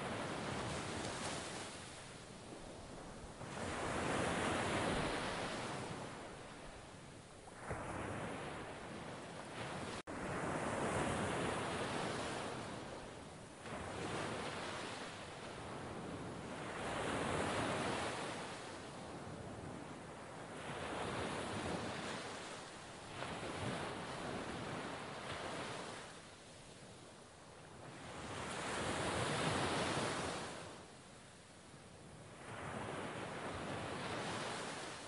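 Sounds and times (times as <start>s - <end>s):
sea waves breaking on beach: 0.0s - 26.3s, 32.3s - 35.0s.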